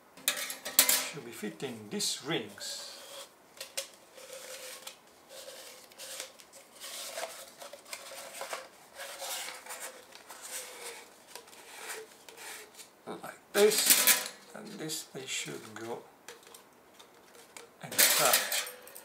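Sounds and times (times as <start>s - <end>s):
metal parts clicking and scraping: 0.2s - 1.2s, 13.6s - 14.5s, 16.3s - 19.0s.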